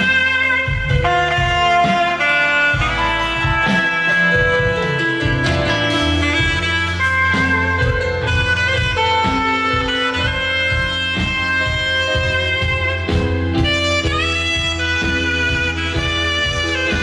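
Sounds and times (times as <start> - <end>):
bass line: 0.0 - 17.0
drums: 0.0 - 17.0
saxophone slow melody: 0.0 - 17.0.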